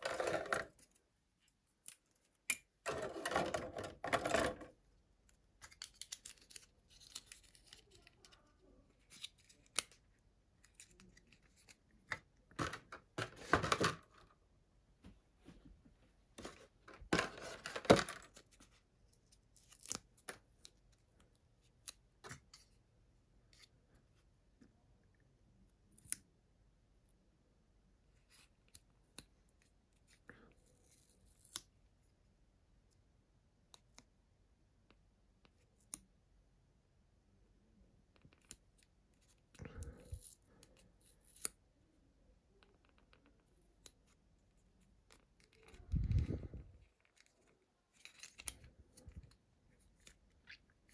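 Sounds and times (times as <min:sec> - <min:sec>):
paper and cardboard rustling: 0:16.4 - 0:18.7.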